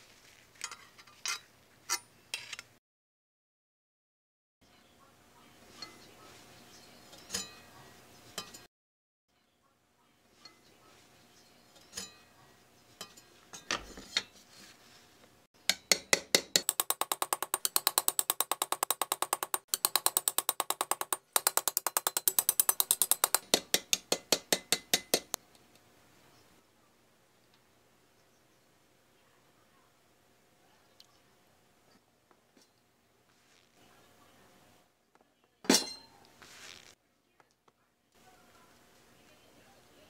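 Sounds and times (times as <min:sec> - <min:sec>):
hammer tapping metal on anvil: 0:15.6 - 0:25.4
handling clicks and knocks: 0:15.7 - 0:25.4.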